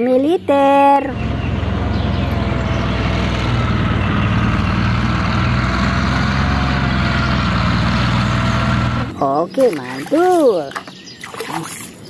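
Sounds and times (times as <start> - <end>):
tank engine rumbling: 0.0 - 9.6.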